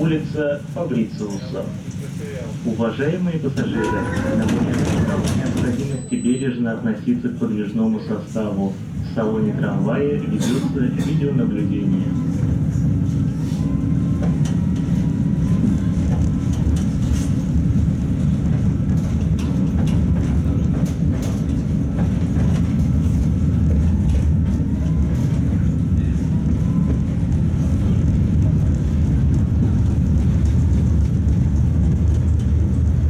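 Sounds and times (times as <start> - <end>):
tram wheels rumbling on rails: 0.0 - 33.0.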